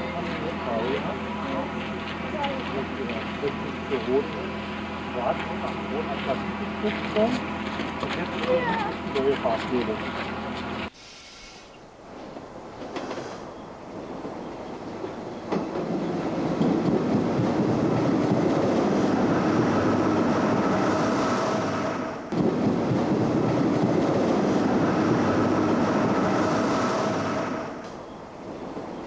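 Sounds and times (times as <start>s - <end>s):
electric train whine: 0.0s - 29.0s
train wheel and rail noise: 0.0s - 29.0s.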